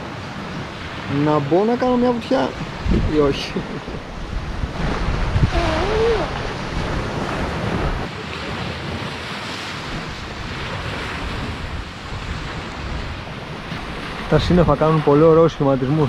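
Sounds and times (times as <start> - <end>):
waves washing over pebbles: 0.0 - 16.0
wind rumbling on microphone: 0.0 - 16.0
brief rising voice: 5.5 - 6.4.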